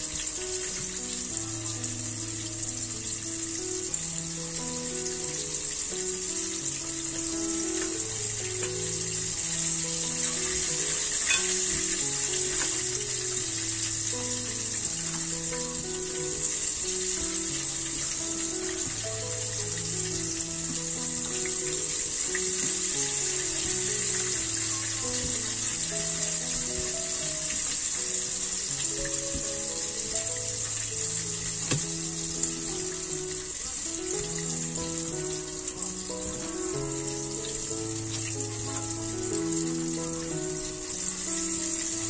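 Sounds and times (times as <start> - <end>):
slow instrumental music: 0.0 - 42.0
steady high hiss: 0.0 - 42.0.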